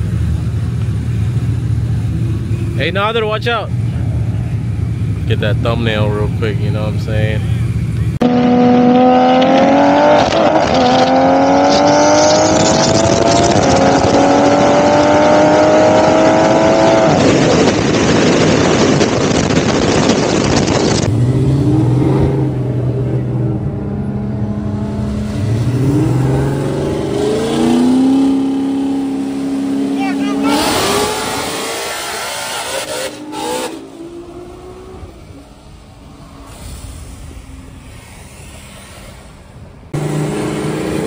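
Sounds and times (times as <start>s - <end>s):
car engine revving: 0.0s - 41.0s
car accelerating through gears: 8.2s - 17.9s, 21.0s - 35.5s, 40.0s - 41.0s
loud rushing noise: 30.2s - 41.0s.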